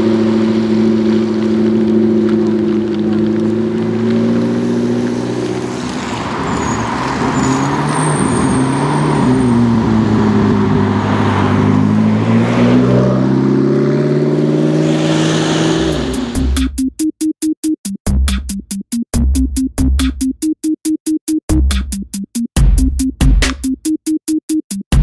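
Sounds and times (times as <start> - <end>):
car engine accelerating: 0.0 - 16.8.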